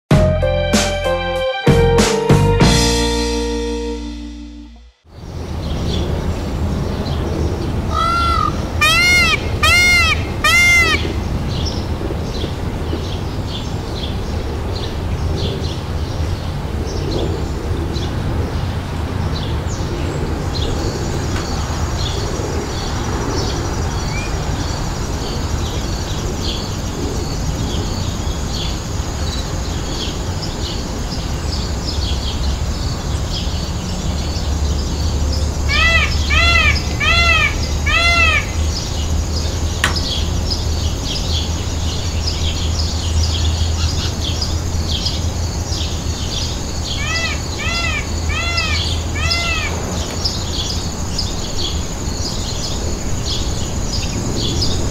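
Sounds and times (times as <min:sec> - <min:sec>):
thin high drone: 0:00.1 - 0:04.9
peafowl calling: 0:07.9 - 0:11.3, 0:35.7 - 0:38.9, 0:46.9 - 0:50.1
small birds chirping: 0:20.6 - 0:54.8.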